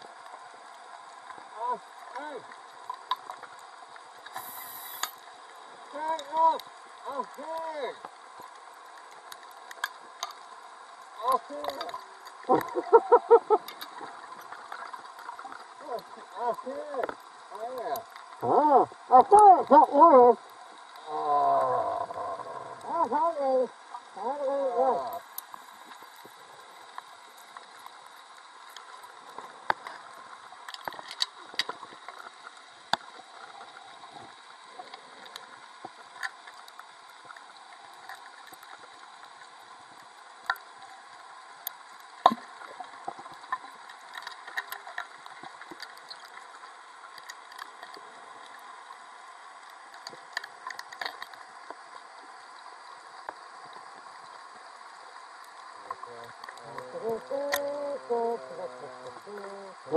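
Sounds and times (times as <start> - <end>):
underwater hiss: 4.2 - 5.8.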